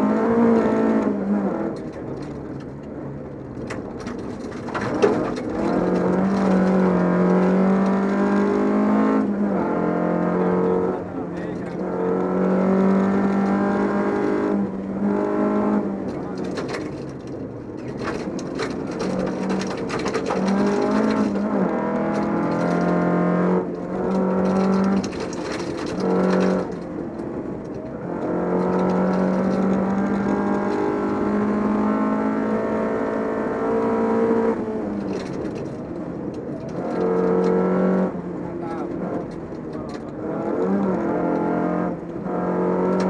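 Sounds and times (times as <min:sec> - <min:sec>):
car engine at high revs: 0:00.0 - 0:43.0
gravel striking car underside: 0:01.6 - 0:08.6, 0:13.1 - 0:31.2, 0:34.8 - 0:41.4.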